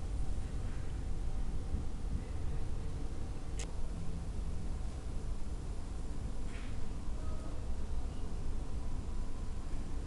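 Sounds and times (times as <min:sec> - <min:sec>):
room noise rumble and hum: 0:00.0 - 0:10.0.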